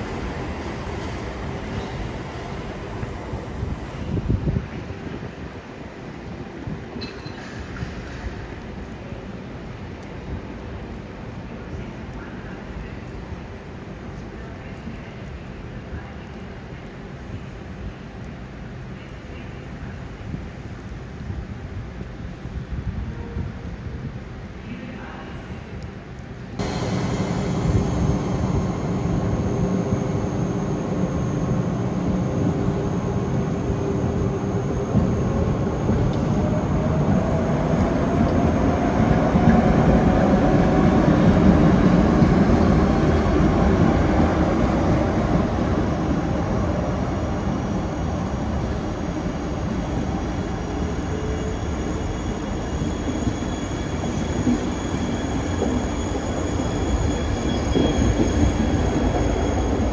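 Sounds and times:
train coaches rumbling past: 0:00.0 - 0:18.1, 0:26.4 - 0:59.9
electric locomotive whine: 0:26.6 - 0:59.9.

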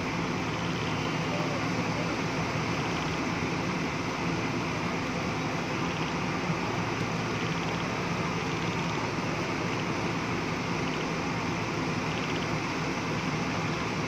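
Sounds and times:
excavator diesel engine running: 0:00.0 - 0:14.0.

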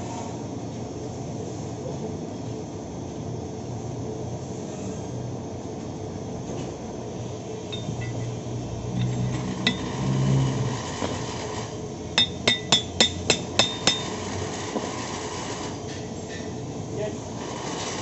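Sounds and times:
low workshop hum: 0:00.0 - 0:18.0
hammer striking metal pin: 0:07.7 - 0:08.3, 0:08.9 - 0:10.1, 0:12.2 - 0:14.2.

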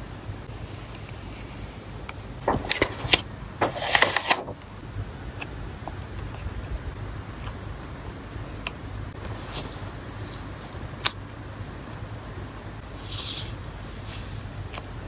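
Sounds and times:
plastic sleeve crackling: 0:02.4 - 0:04.8.

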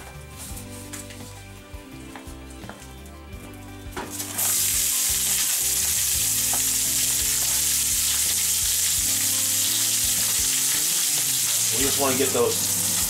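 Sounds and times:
vegetables sizzling in oil: 0:04.1 - 0:13.0.

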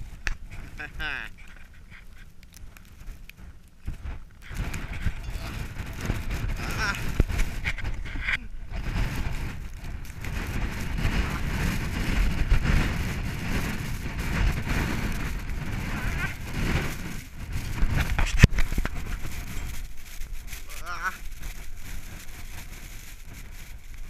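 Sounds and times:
strong wind buffeting microphone: 0:00.0 - 0:24.0.

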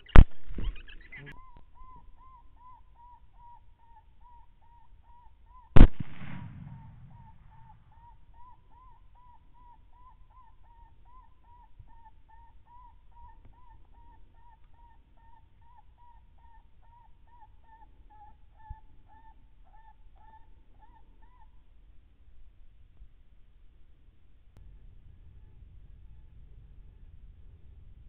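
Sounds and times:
suppressed rifle shot: 0:05.8 - 0:07.9.

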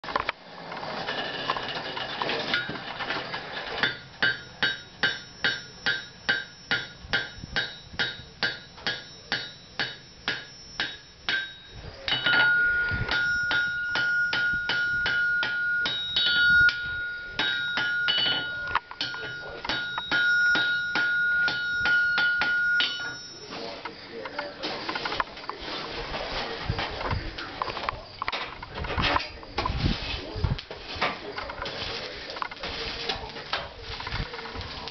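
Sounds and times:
hammer striking metal on anvil: 0:03.8 - 0:23.5
clear high ring: 0:03.9 - 0:24.0.

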